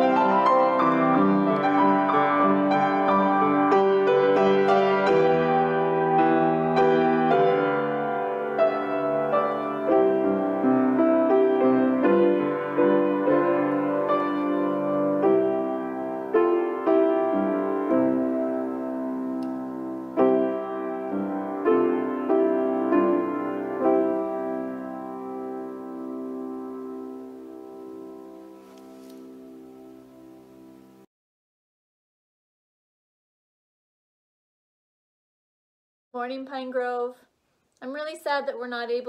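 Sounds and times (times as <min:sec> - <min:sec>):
grand piano playing chords: 0:00.0 - 0:31.1.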